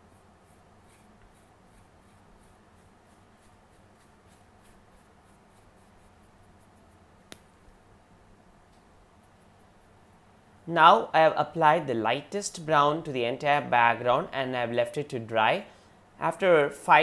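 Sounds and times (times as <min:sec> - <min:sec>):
paintbrush strokes on paper: 0:00.0 - 0:07.2, 0:09.2 - 0:10.7
low room hum: 0:00.0 - 0:17.0.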